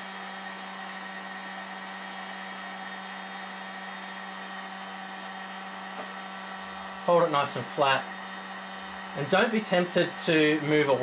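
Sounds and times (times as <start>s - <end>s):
heat gun blowing hiss: 0.0s - 11.0s.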